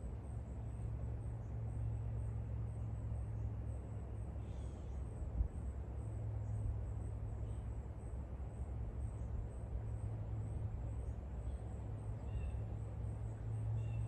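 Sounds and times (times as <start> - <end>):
insect-like chirp: 11.4 - 14.0.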